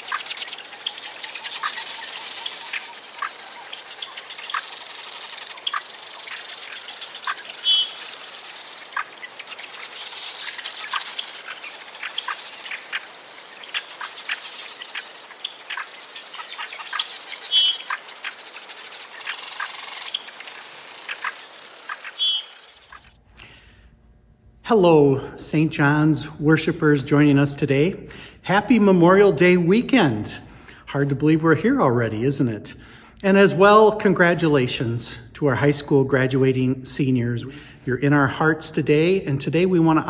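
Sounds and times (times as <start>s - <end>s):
birds chirping and calling: 0.0s - 23.2s.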